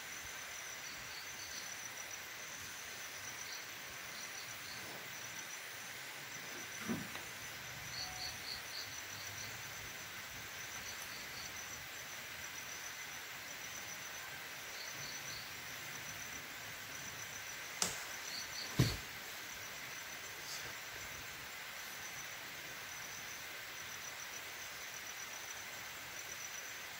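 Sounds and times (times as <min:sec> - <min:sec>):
insects chirping: 0:00.0 - 0:26.9
steady background hiss: 0:00.0 - 0:26.9
sharp cracks: 0:17.8 - 0:19.0.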